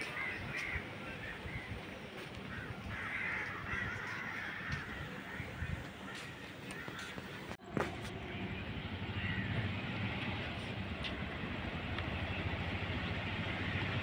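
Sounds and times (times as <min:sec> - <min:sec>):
crows cawing: 0:00.0 - 0:01.7, 0:02.3 - 0:07.6, 0:09.1 - 0:09.7.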